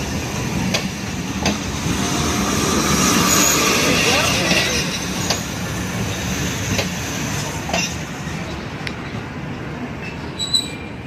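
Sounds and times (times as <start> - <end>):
train wheels clicking over rail joints: 0.5 - 1.9, 2.6 - 8.1
wheel squeal: 10.0 - 11.0.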